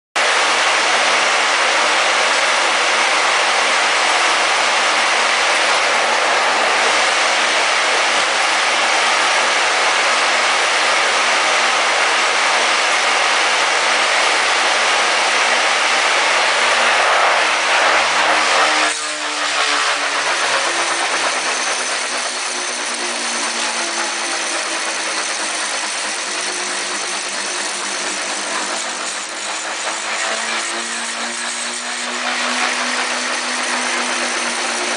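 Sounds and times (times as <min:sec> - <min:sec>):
electric motors whirring: 0:15.7 - 0:34.9.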